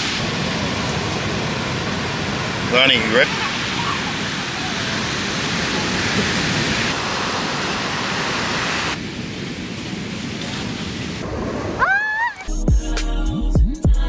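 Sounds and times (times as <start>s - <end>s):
ocean surf breaking: 0.0s - 12.5s
woman shrieking: 11.8s - 12.5s.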